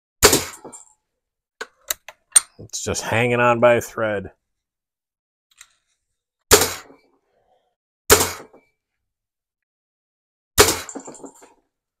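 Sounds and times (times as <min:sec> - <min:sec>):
bb gun shots: 0:06.5 - 0:06.9, 0:08.1 - 0:08.6, 0:10.6 - 0:11.3.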